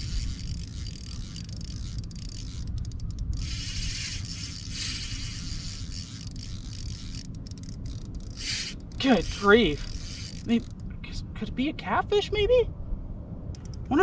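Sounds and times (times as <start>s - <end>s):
spinning reel ratcheting: 0.0s - 10.9s
steady low rumble: 0.0s - 14.0s.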